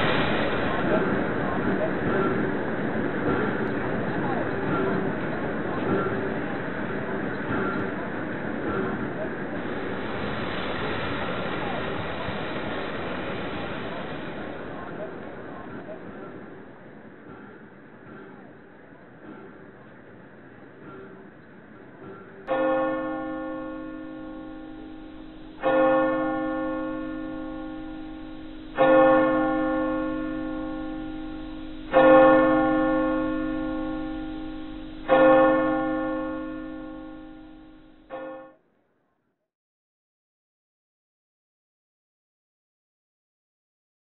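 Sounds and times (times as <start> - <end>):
church bell tolling: 22.0 - 38.6.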